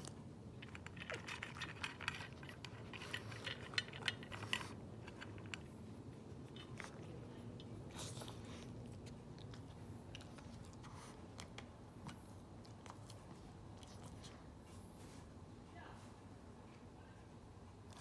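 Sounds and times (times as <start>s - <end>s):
dog crunching dry kibble: 0.0s - 14.4s.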